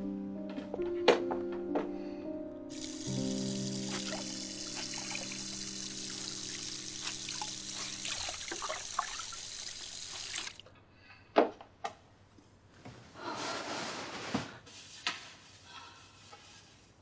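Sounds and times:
tap water running into sink: 2.7s - 10.6s.

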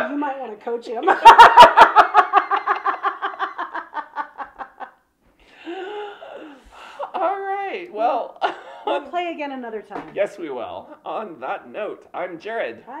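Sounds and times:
people laughing: 1.0s - 5.0s.

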